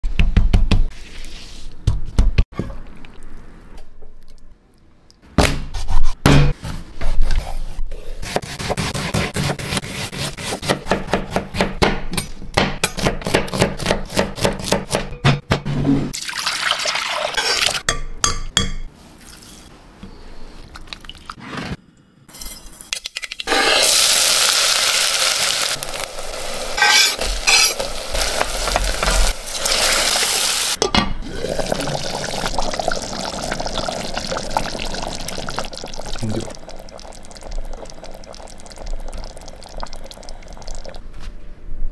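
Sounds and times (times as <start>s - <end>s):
food sizzling in pot: 22.3s - 41.0s.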